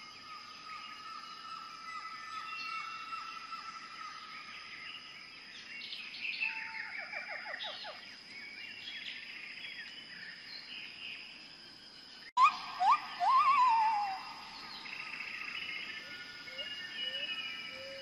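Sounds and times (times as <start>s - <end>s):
high insect drone: 6.9s - 18.0s
birds chirping: 12.3s - 18.0s
falling whistled notes: 12.4s - 14.4s
loud rising bird call: 12.4s - 15.1s.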